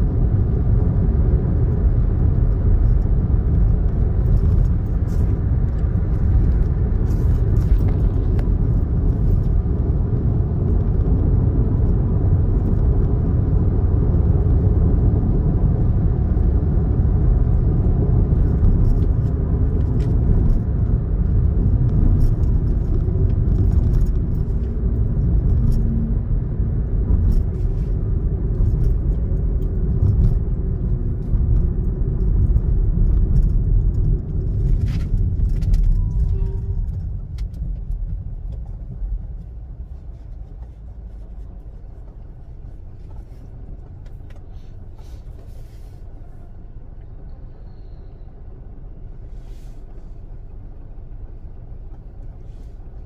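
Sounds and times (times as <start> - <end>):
road and engine rumble: 0.0 - 53.0
engine idle hum: 17.6 - 53.0.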